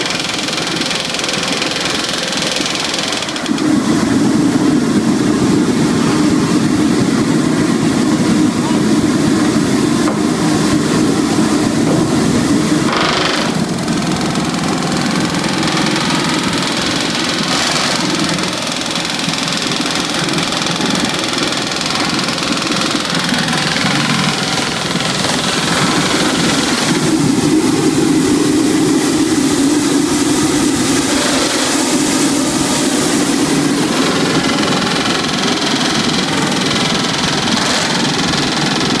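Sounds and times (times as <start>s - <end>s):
rivet guns hammering steel: 0.0s - 3.6s, 12.9s - 27.0s, 33.9s - 39.0s.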